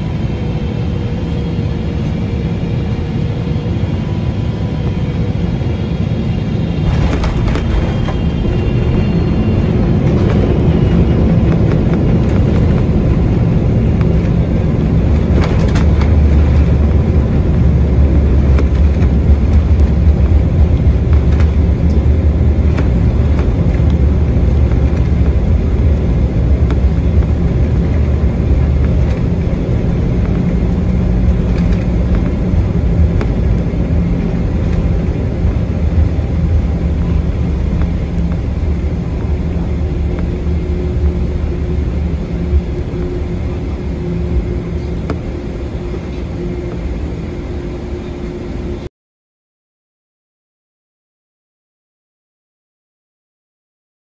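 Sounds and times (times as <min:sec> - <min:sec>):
airplane cabin engine rumble: 0:00.0 - 0:48.9.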